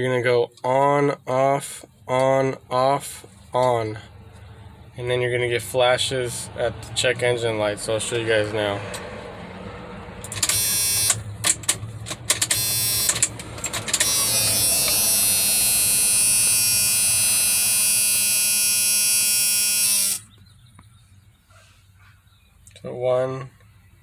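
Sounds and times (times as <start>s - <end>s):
electric warning buzzer: 10.4s - 11.3s, 12.4s - 20.3s.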